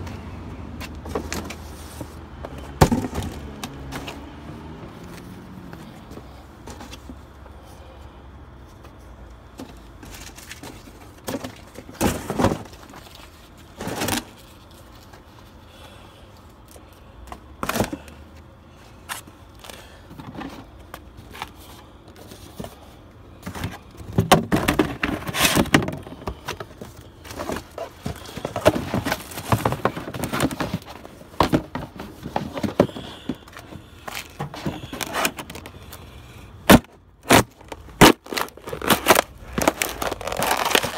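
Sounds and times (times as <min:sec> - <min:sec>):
cardboard boxes thumping: 0:02.4 - 0:04.2, 0:11.2 - 0:12.8, 0:23.4 - 0:35.4
cardboard crunching underfoot: 0:23.4 - 0:36.0, 0:36.7 - 0:40.9.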